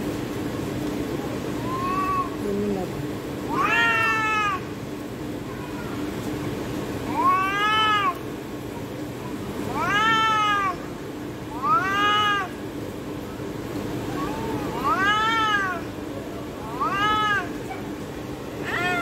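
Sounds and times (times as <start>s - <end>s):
cats yowling: 1.6s - 2.4s, 3.5s - 4.7s, 7.1s - 8.2s, 9.6s - 10.9s, 11.5s - 12.6s, 14.0s - 19.0s.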